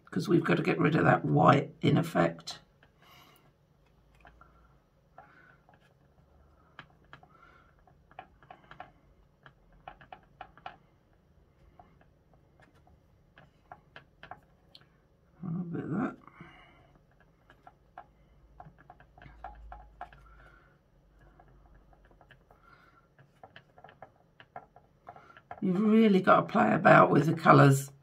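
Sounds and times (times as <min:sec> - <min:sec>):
paintbrush tapping plastic palette: 0:02.6 - 0:15.1, 0:16.5 - 0:25.8.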